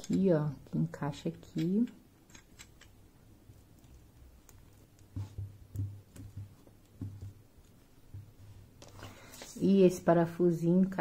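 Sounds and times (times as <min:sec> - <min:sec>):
plastic parts clicking: 0:01.4 - 0:03.0
soft knocks and bumps: 0:05.1 - 0:08.7.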